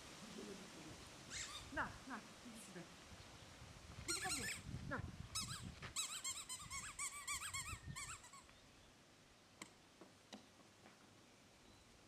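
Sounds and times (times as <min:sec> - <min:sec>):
squeaky toy high squeaks: 0:01.3 - 0:01.7, 0:04.1 - 0:04.6, 0:05.4 - 0:08.5.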